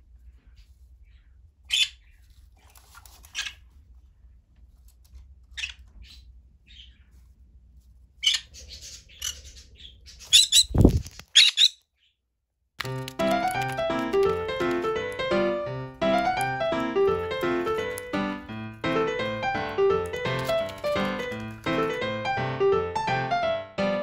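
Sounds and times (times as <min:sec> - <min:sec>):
parrot harsh calls: 0:08.2 - 0:10.8, 0:11.4 - 0:11.8
piano music: 0:12.8 - 0:24.0.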